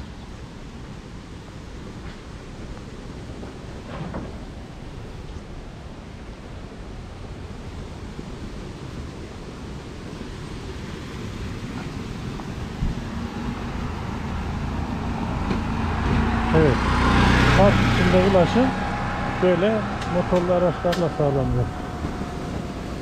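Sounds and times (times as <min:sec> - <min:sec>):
wind rumbling on microphone: 0:00.0 - 0:23.0
motor vehicle engine approaching: 0:11.2 - 0:23.0.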